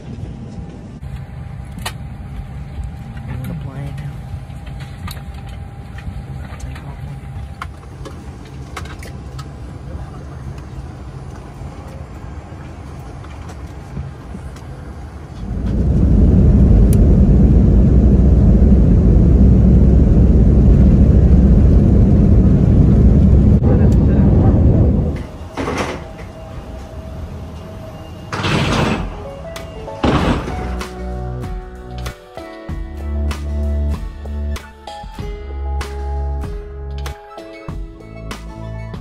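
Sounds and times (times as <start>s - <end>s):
airliner cabin hum: 0.0s - 31.4s
loud low rumble: 15.0s - 26.0s.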